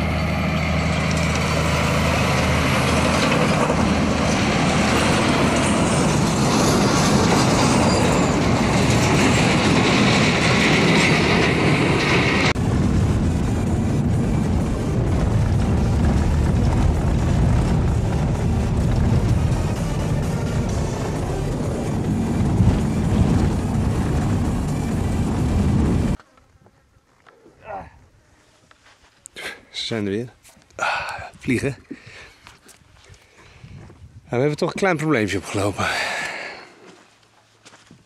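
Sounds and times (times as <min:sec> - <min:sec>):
truck driving past on gravel: 0:00.0 - 0:09.8.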